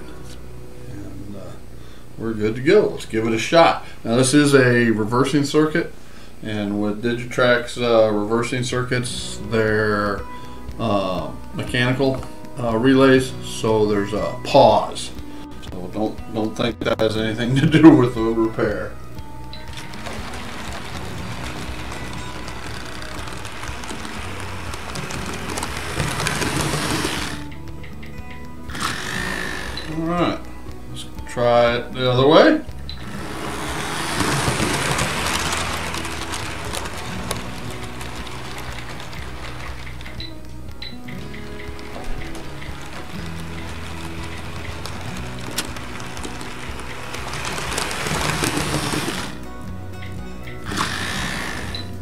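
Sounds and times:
background music: 0:00.0 - 0:52.0
model train whirring over track: 0:19.8 - 0:27.5, 0:28.7 - 0:29.9, 0:33.0 - 0:40.2, 0:41.5 - 0:49.4, 0:50.6 - 0:52.0.

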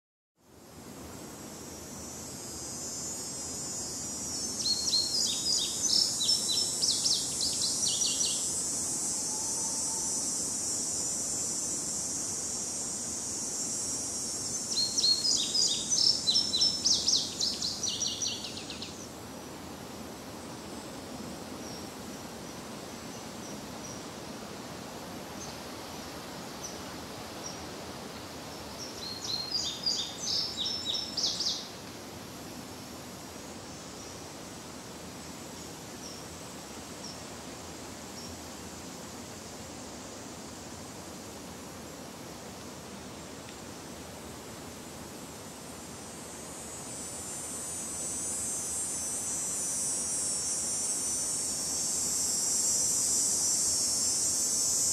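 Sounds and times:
soft breeze through trees: 0:00.4 - 0:54.9
cicada drone: 0:00.5 - 0:54.9
songbird chirping: 0:04.4 - 0:08.6, 0:14.5 - 0:19.1, 0:28.5 - 0:31.8.

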